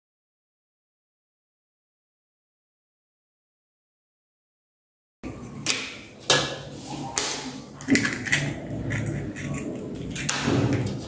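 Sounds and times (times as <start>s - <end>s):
knife cracking eggshells: 7.2s - 10.9s.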